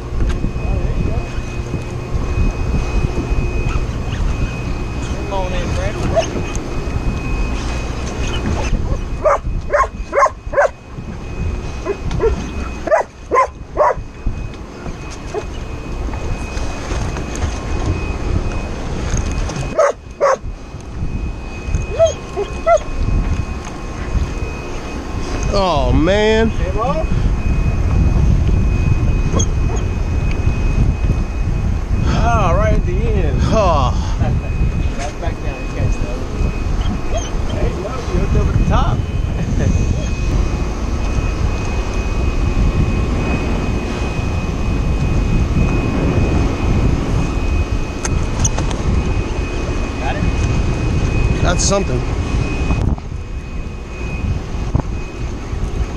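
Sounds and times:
engine drone: 0.0s - 55.9s
high whine: 0.0s - 55.9s
low rumble: 0.0s - 55.9s
wind buffeting microphone: 0.0s - 55.9s
dog whining: 6.0s - 6.6s, 8.2s - 10.7s, 11.8s - 14.0s, 15.3s - 15.6s, 19.7s - 20.4s, 21.9s - 22.9s, 29.3s - 29.9s, 36.8s - 37.5s.

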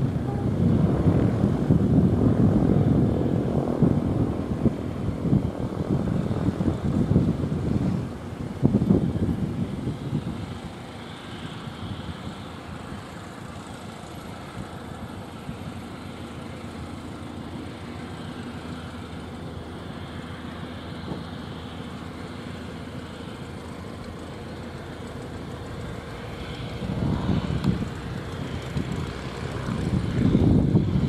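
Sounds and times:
jet engines taxiing: 0.0s - 31.0s.

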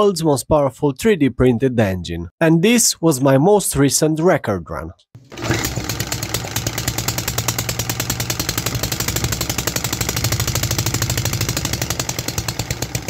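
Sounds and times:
small engine running fast: 5.2s - 13.0s.

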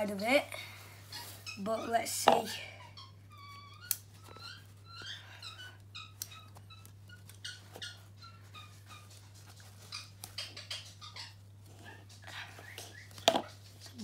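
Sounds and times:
scissors snipping cloth: 3.8s - 4.4s.

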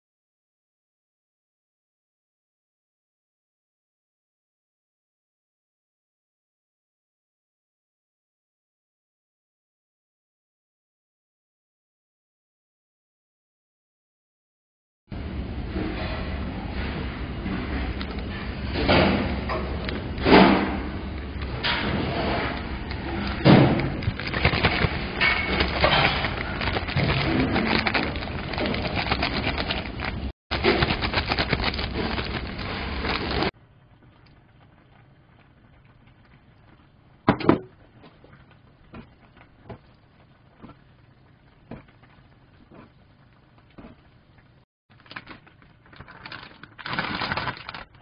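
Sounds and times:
plastic zipper bag crinkling: 22.9s - 33.5s, 44.9s - 48.0s.

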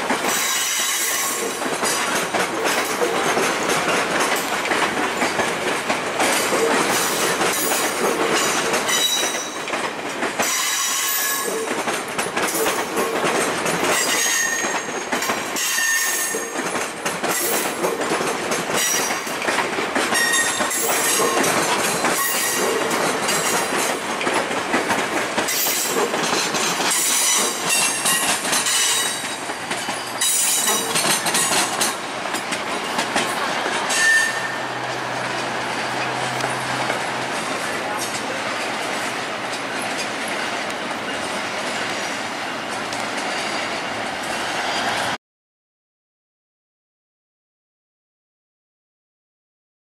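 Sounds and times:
wheels clacking over rail joints: 0.0s - 45.1s
train wheels squealing on curve: 0.2s - 1.6s, 6.8s - 9.7s, 10.4s - 11.7s, 13.9s - 16.6s, 18.8s - 19.3s, 20.1s - 23.8s, 25.5s - 31.7s, 33.8s - 34.8s, 43.2s - 45.1s.

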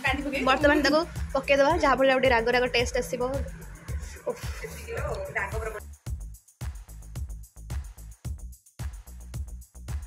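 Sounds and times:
electronic dance music: 0.0s - 5.8s.

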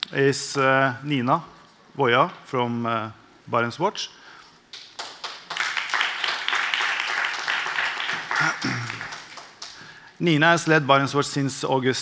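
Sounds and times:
audience applauding: 4.7s - 9.9s.

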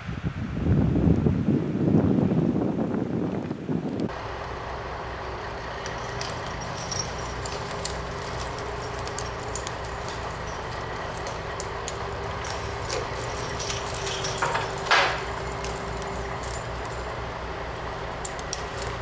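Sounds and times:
diesel engines idling: 4.1s - 19.0s.

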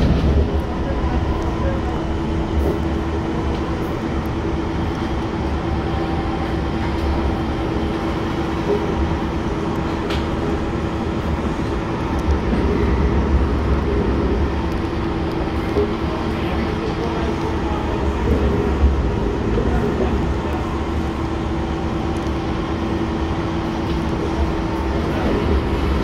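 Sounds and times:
steady train hum: 0.0s - 26.0s
train wheels rumbling on track: 0.0s - 26.0s.

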